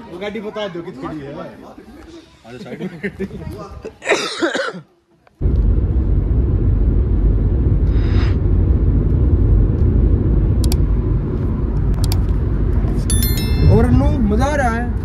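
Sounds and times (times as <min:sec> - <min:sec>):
car rumbling on the move: 0:05.4 - 0:15.0.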